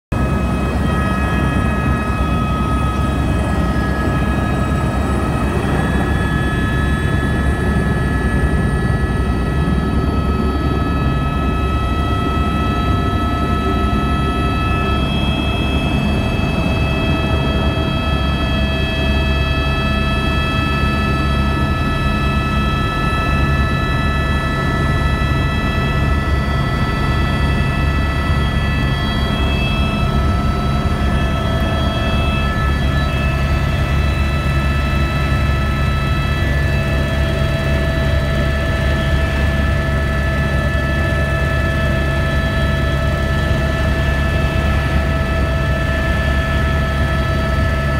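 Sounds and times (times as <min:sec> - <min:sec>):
helicopter engine and rotor drone: 0:00.1 - 0:47.9
high whining tones: 0:00.1 - 0:47.9.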